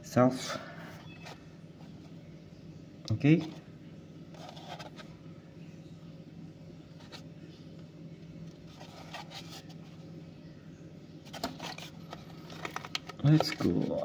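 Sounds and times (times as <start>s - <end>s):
plastic crackling and clicking: 11.3s - 13.8s.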